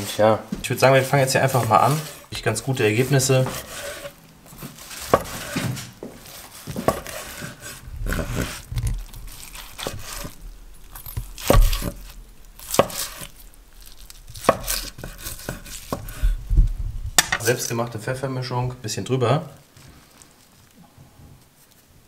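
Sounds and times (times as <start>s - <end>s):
knife slicing through steak: 3.1s - 10.4s, 11.0s - 13.4s, 14.3s - 16.3s.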